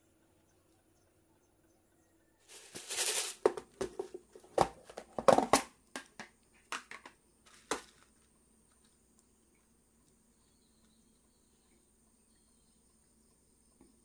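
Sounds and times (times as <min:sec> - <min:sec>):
plastic container rustle: 0:02.5 - 0:05.7, 0:06.9 - 0:08.2
plastic container clicks and knocks: 0:03.4 - 0:08.0.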